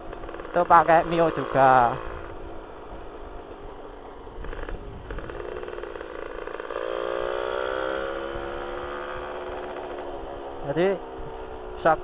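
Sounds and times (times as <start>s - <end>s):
two-stroke engine running: 0.0s - 12.0s.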